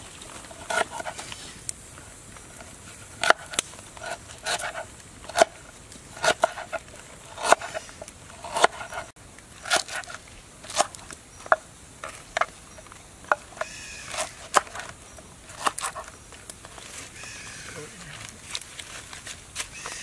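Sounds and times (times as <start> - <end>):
knife chopping on wooden board: 6.2 - 6.8, 7.4 - 7.8, 8.4 - 9.1.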